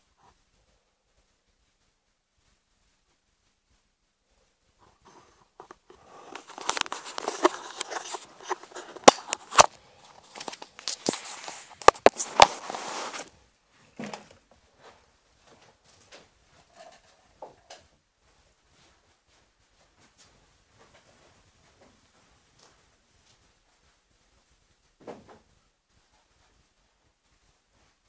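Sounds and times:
microphone handling rustling: 5.6s - 13.3s.

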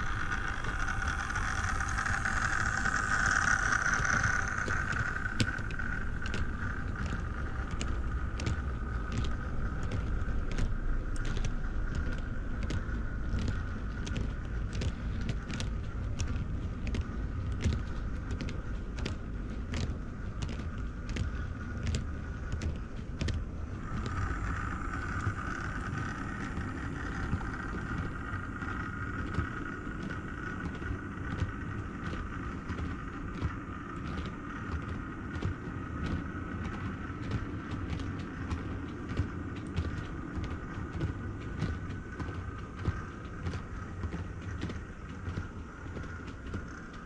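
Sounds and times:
model train motor whine: 0.0s - 11.5s, 23.8s - 33.1s
low rumble: 0.0s - 47.0s
wheels clicking over rail joints: 0.0s - 47.0s.

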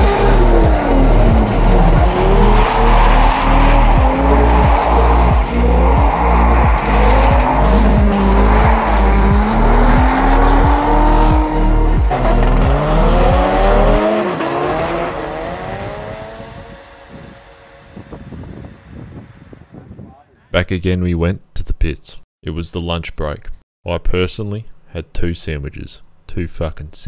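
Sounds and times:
music with steady beat: 0.0s - 15.0s
car engines revving: 0.0s - 19.7s.

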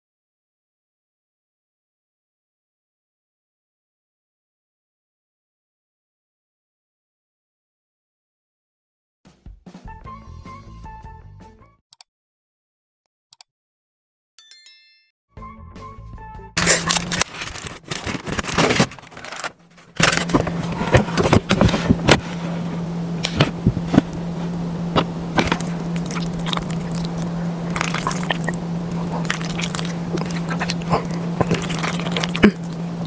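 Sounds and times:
fork scraping food in foil tray: 16.6s - 24.5s
steady low hum: 16.6s - 33.0s.

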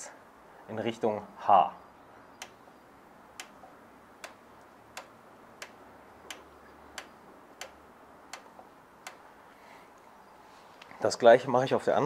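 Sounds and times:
shock adjuster clicks: 2.4s - 2.6s, 3.4s - 3.6s, 4.2s - 9.2s.

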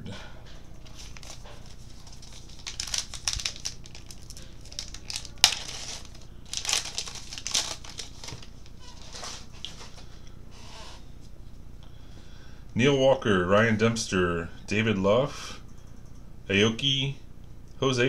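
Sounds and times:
wrappers tearing and crinkling: 0.8s - 10.0s.

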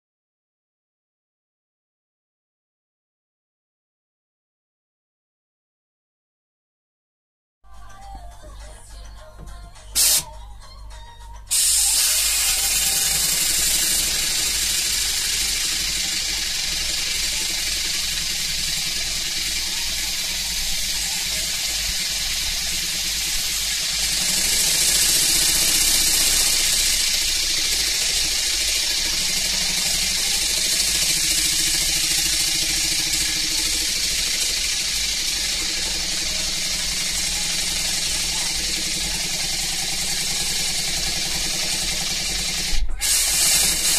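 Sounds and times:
loud hiss of compressed air: 10.0s - 10.3s, 11.5s - 43.9s
model engine running: 11.5s - 43.9s.

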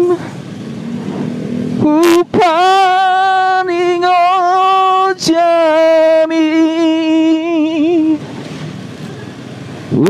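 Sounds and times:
person singing slow song: 0.0s - 0.4s, 1.8s - 8.2s.

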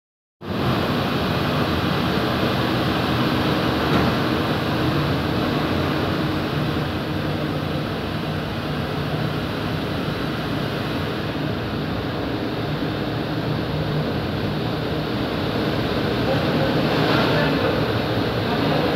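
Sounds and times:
steady machine noise: 0.4s - 18.9s.

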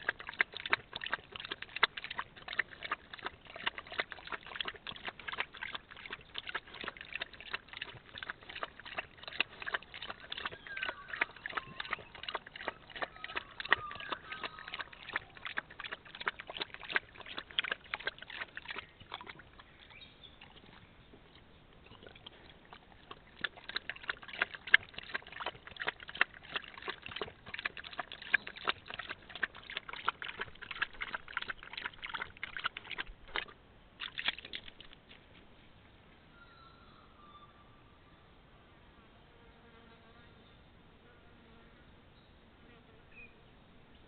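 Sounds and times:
dog lapping water: 0.0s - 35.1s.

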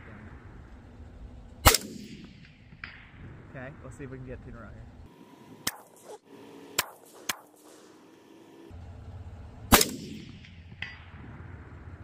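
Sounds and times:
loud rifle shot: 1.6s - 3.4s, 5.6s - 6.2s, 9.7s - 11.6s
faint sharp cracks: 6.8s - 8.2s, 9.7s - 11.2s.

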